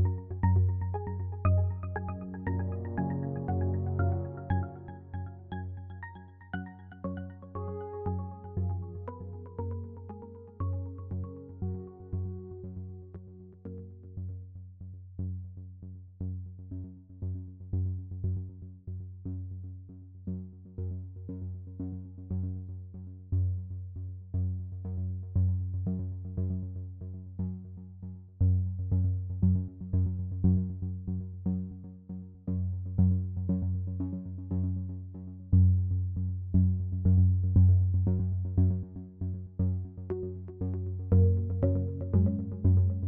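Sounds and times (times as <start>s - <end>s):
electronic synthesizer music: 0.3s - 10.4s.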